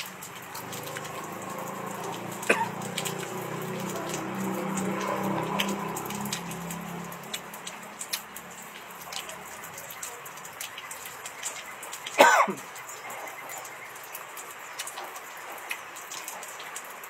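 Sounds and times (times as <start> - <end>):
man coughing: 2.5 - 2.8, 12.2 - 12.6.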